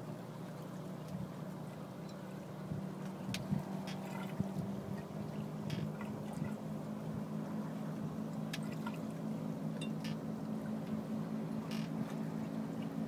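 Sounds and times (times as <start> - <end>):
steady low hum: 0.0 - 13.0
water gurgling along a hull: 0.0 - 13.0
small splashes: 3.0 - 6.7, 8.5 - 9.2.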